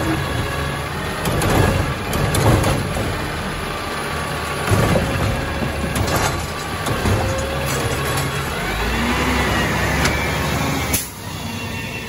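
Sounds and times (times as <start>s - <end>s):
diesel engine running: 0.0s - 12.0s
loader arm dumping cart: 0.0s - 12.0s
loud clatter: 1.2s - 3.4s, 4.6s - 8.8s.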